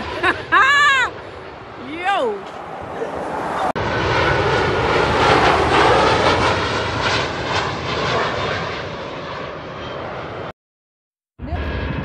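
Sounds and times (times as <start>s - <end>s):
jet airliner passing overhead: 0.0s - 10.6s, 11.4s - 12.0s.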